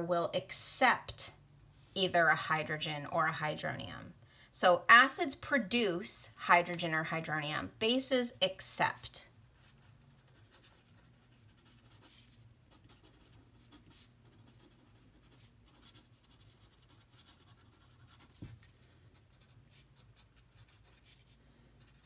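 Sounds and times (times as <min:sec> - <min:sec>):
pen scratching on paper: 0:09.6 - 0:22.0.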